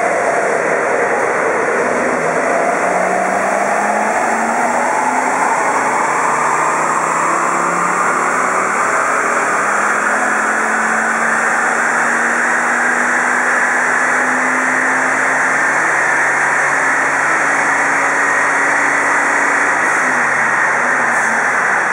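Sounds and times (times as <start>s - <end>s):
car engine running under load: 0.0s - 21.9s
rising engine whine: 0.0s - 21.9s.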